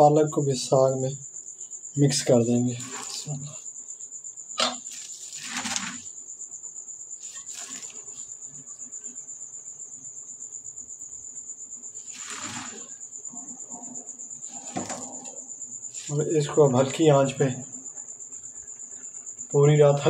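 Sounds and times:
cricket trilling: 0:00.0 - 0:20.0
greens rustling in metal pot: 0:02.6 - 0:03.6, 0:04.8 - 0:06.1, 0:07.2 - 0:08.4, 0:12.0 - 0:13.0, 0:14.4 - 0:15.3.

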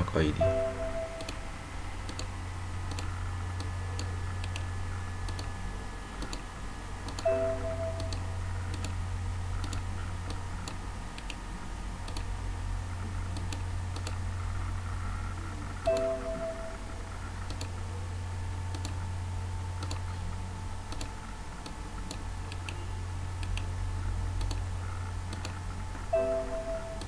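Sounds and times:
low electrical hum: 0:00.0 - 0:27.0
computer mouse clicks: 0:01.2 - 0:01.4, 0:02.1 - 0:02.3, 0:02.9 - 0:04.7, 0:05.3 - 0:05.5, 0:06.2 - 0:06.4, 0:08.0 - 0:09.0, 0:09.6 - 0:11.4, 0:12.1 - 0:12.3, 0:13.4 - 0:14.2, 0:17.4 - 0:17.8, 0:18.7 - 0:19.0, 0:19.8 - 0:20.2, 0:20.9 - 0:22.8, 0:23.4 - 0:23.7, 0:24.4 - 0:24.7, 0:25.3 - 0:25.6.

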